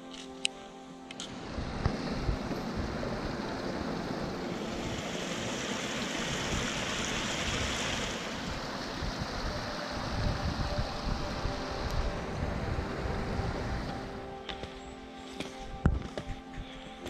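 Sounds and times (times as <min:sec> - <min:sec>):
stream rushing over rocks: 0:01.3 - 0:14.3.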